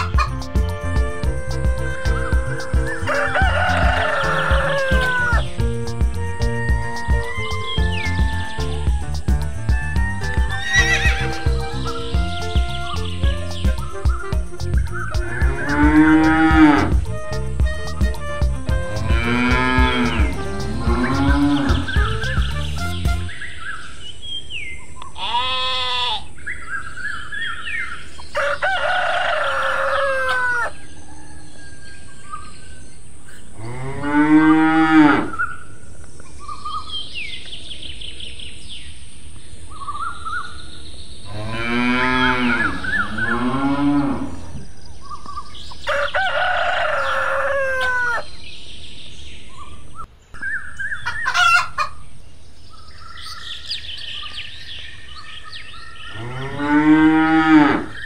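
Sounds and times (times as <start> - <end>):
chicken calls: 0.0 - 23.4, 28.0 - 32.5, 41.3 - 48.4, 50.4 - 52.1
small birds chirping: 0.0 - 28.8, 35.3 - 58.0
cows mooing: 1.8 - 5.4, 15.4 - 17.0, 18.7 - 22.0, 33.6 - 35.4, 41.3 - 44.6, 56.1 - 58.0.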